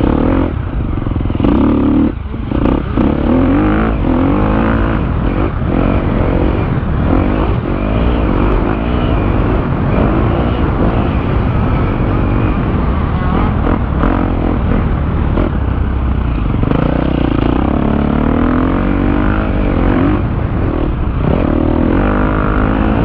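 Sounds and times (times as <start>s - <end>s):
motocross bike engine revving: 0.0s - 23.0s.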